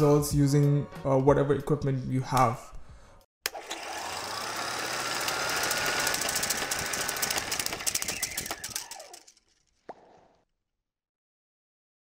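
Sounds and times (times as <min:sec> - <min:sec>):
film projector clattering: 0:03.5 - 0:09.4.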